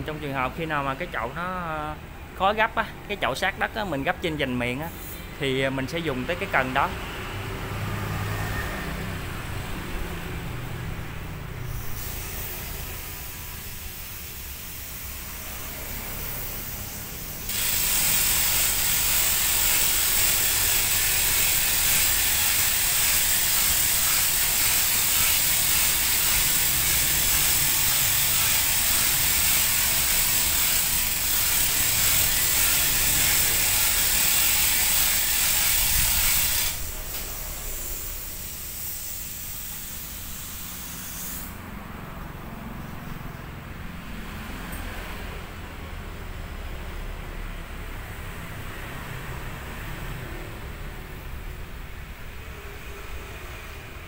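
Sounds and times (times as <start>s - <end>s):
winch ratchet clicking: 17.5s - 37.4s.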